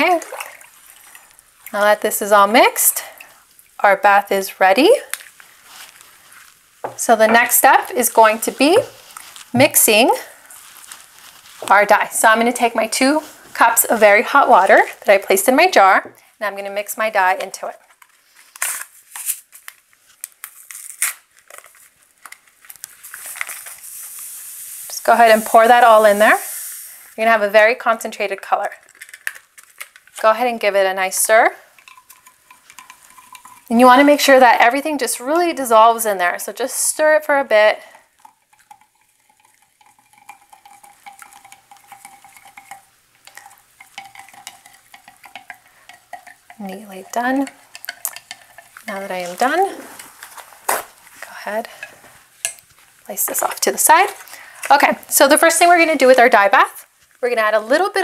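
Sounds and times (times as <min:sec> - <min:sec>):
spoon clinking in glass jar: 0:31.8 - 0:33.7, 0:38.2 - 0:48.8.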